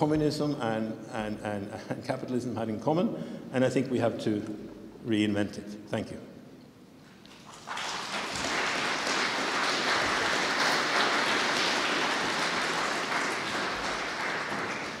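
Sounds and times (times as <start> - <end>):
audience applauding: 7.2 - 15.0.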